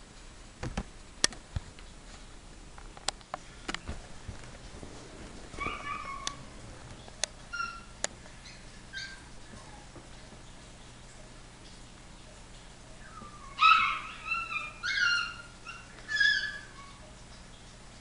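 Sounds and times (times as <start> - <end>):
sharp clicks and knocks: 0.6 - 1.9
puppies whining: 5.5 - 10.0, 12.9 - 17.3.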